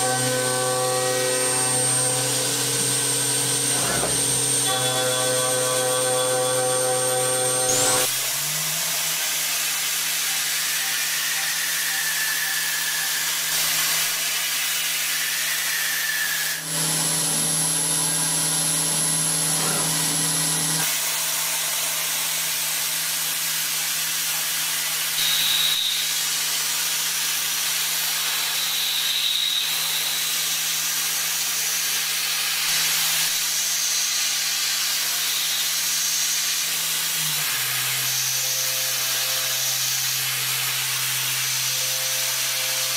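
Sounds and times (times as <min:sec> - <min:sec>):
milling machine cutting hiss: 0:00.0 - 0:17.5.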